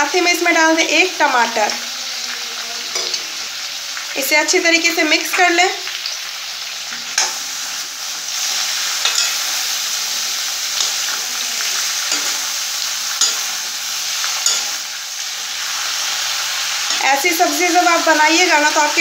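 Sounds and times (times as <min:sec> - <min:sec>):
vegetables sizzling in oil: 0:00.0 - 0:19.0
metal spatula scraping pan: 0:06.9 - 0:09.8, 0:10.7 - 0:15.0.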